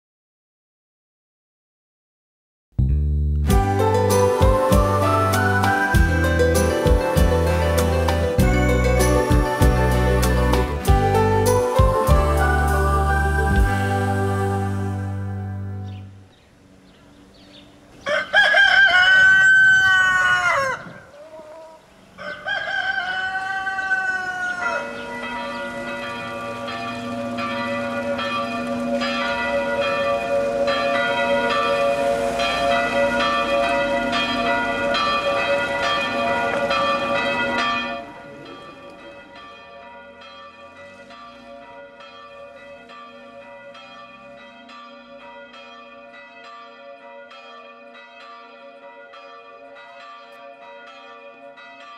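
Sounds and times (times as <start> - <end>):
church bells ringing: 3.5 - 16.8, 23.3 - 51.9
rooster crowing: 18.0 - 27.2.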